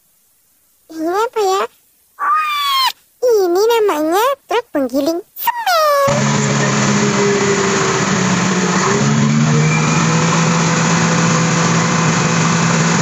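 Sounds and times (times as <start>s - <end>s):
diesel engine running: 6.1s - 13.0s.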